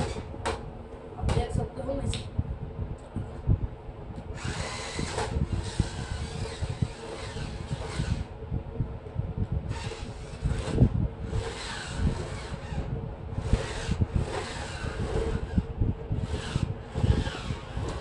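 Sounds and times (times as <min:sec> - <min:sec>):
electric motors whirring: 0:00.0 - 0:00.6, 0:04.3 - 0:08.4, 0:09.7 - 0:18.0.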